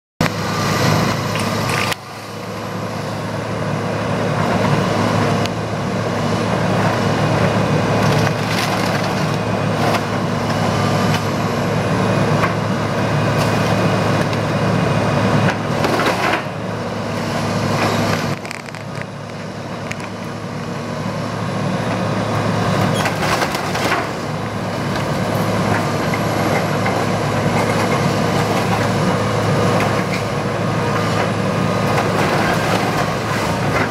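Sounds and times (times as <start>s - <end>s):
excavator diesel engine running: 0.2s - 33.9s
wood creaking and splintering: 8.0s - 11.3s, 17.7s - 19.1s, 22.8s - 24.2s.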